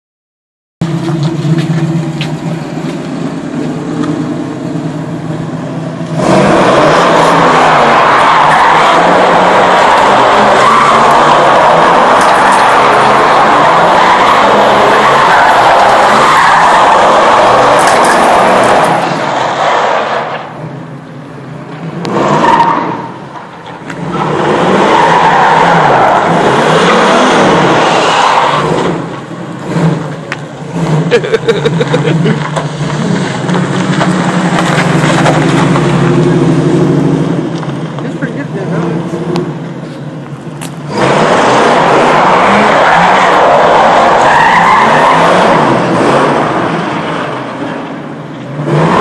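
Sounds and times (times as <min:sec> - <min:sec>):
car engine running at low revs: 0:00.8 - 0:06.4
tires squealing: 0:00.8 - 0:20.7, 0:21.8 - 0:49.0.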